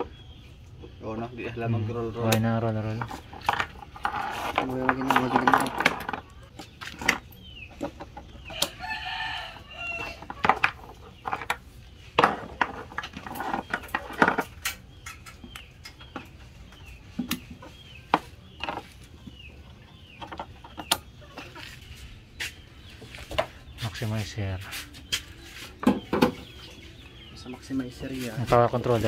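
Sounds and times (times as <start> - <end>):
chickens calling: 0.0 - 29.0
rooster crowing: 8.5 - 10.3.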